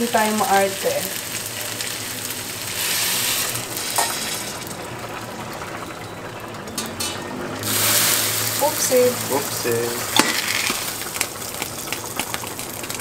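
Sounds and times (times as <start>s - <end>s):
water sizzling in hot pan: 0.0s - 13.0s.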